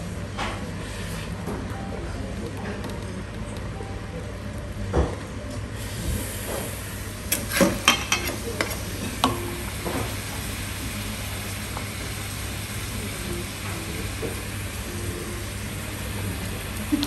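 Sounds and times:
broth boiling hiss: 5.6 - 17.0.

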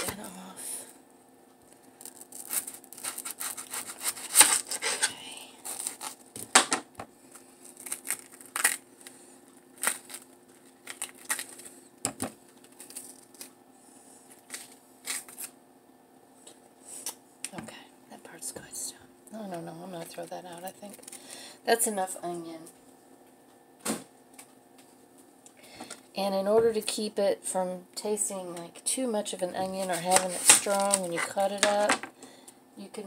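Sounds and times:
faint steady hum: 0.0 - 33.0
onion skin crackling and rustling: 1.6 - 6.6, 7.2 - 13.6, 14.2 - 15.6, 19.9 - 21.3, 29.6 - 32.0.

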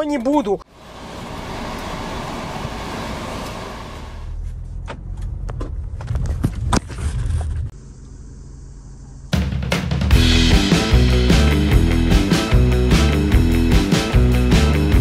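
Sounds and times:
car engine and tyre noise: 0.0 - 9.1
road rumble inside car: 0.3 - 9.3.

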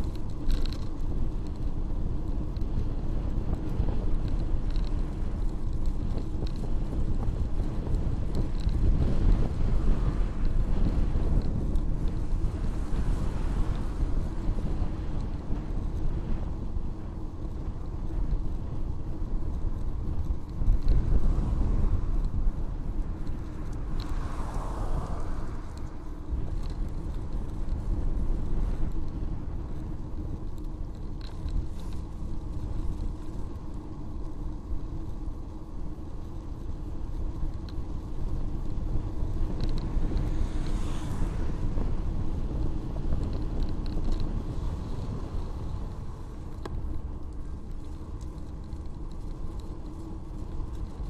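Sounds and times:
bicycle tyre rumble: 0.0 - 51.0
wind: 0.0 - 51.0
car passing: 23.0 - 27.3, 40.2 - 42.1.

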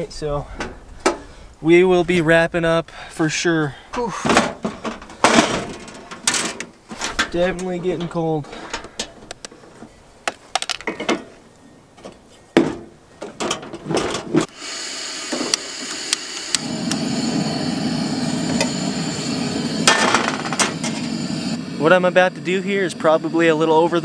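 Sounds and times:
burner flame rushing: 14.4 - 23.9
gas hissing: 14.4 - 24.0
sharp metal clank: 19.8 - 21.1.

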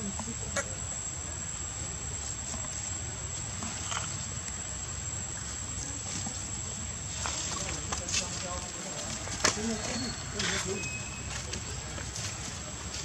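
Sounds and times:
high-pitched insect drone: 9.7 - 11.4.

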